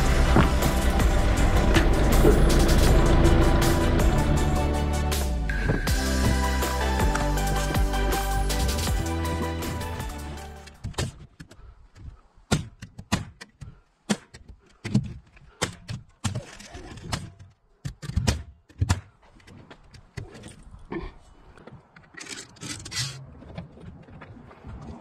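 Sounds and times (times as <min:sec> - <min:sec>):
scraping and rattling: 0:21.8 - 0:24.0.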